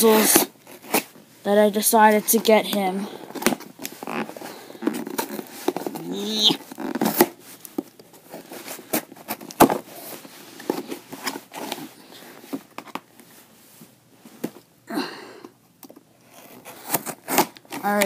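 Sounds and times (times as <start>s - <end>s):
packing tape scraping and crinkling: 0.0s - 1.2s, 2.0s - 12.7s, 16.2s - 18.0s.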